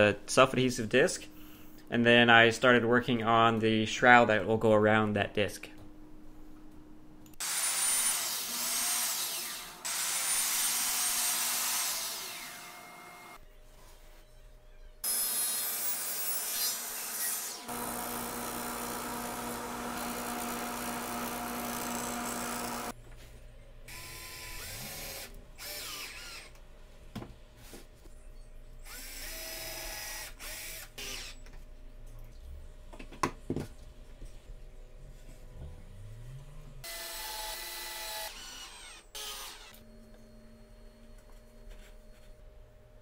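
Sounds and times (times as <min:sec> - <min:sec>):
power tool running: 0:07.4 - 0:13.4, 0:15.0 - 0:23.0, 0:23.9 - 0:26.5, 0:36.8 - 0:39.8
cordless drill whirring: 0:17.6 - 0:22.9, 0:23.9 - 0:26.6.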